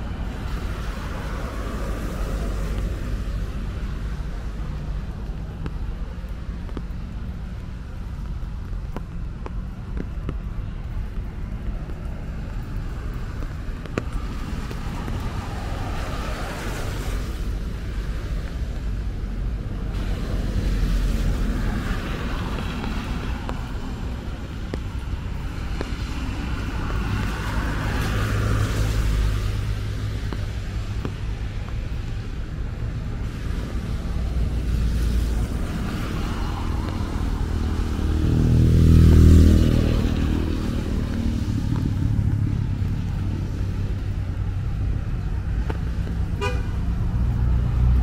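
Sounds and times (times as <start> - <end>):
street traffic rumble: 0.0 - 48.0
cars hissing past on wet road: 0.1 - 5.0, 14.0 - 18.4, 19.9 - 30.9, 33.3 - 44.1.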